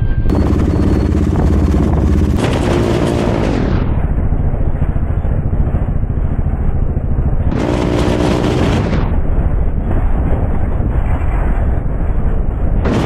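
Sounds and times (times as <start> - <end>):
motorcycle engine revving: 0.3 - 9.2
exhaust popping: 0.3 - 9.4.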